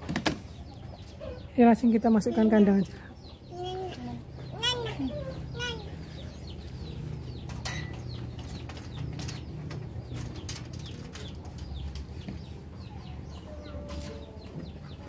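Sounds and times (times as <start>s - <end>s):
birds chirping: 0.0s - 15.0s
wire cage door rattling: 7.6s - 12.1s.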